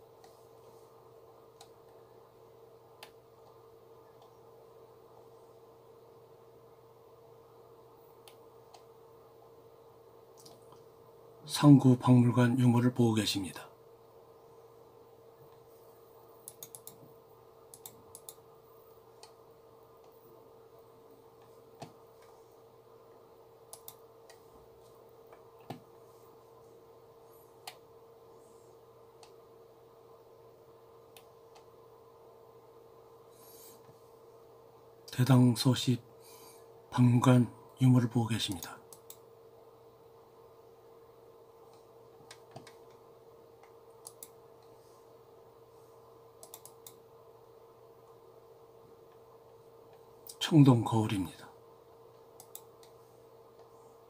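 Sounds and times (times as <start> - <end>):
faint electrical hum: 0.0 - 54.0
computer mouse clicks: 1.6 - 1.8, 3.0 - 3.6, 8.2 - 8.9, 10.4 - 10.9, 16.4 - 17.1, 17.7 - 18.4, 23.7 - 24.4, 38.9 - 39.2, 41.7 - 43.0, 43.6 - 44.8, 46.4 - 47.0, 52.4 - 53.0.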